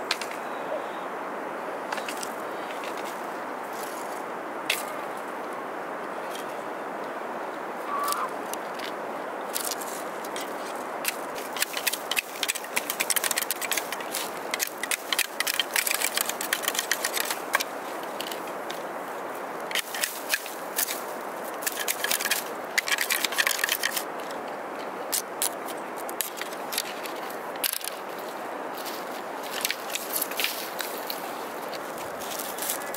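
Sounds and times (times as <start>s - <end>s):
steady background hiss: 0.0s - 32.9s
bamboo strips clicking and scraping: 0.1s - 0.4s, 8.1s - 18.8s, 19.7s - 28.0s, 28.8s - 32.9s.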